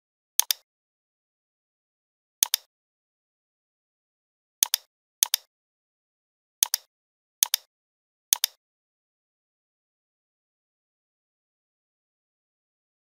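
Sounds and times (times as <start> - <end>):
computer mouse button clicking: 0.4 - 0.6, 2.4 - 2.7, 4.6 - 5.5, 6.6 - 7.7, 8.4 - 8.6.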